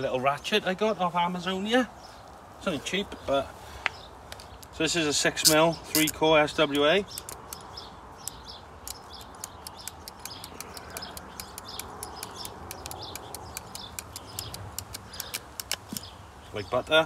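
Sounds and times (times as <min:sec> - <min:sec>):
ratchet cable cutter clicking: 0:05.4 - 0:16.1.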